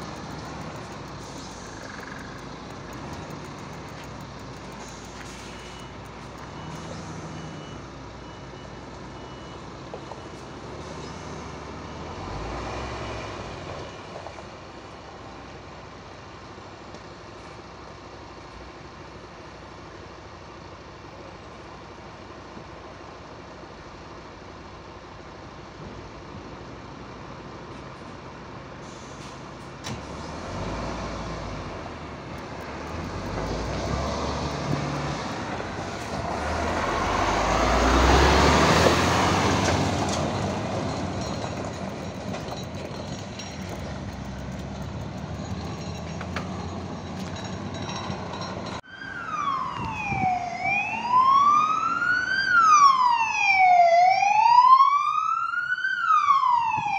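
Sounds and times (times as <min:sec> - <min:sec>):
fire engine diesel engine: 0:00.0 - 0:56.9
siren wailing: 0:48.8 - 0:56.9.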